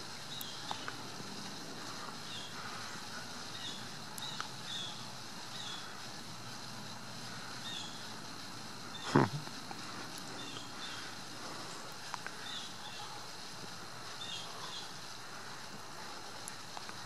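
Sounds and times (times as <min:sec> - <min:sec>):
steady hiss: 0:00.0 - 0:17.0
faint ticks: 0:00.2 - 0:04.8, 0:09.4 - 0:17.0.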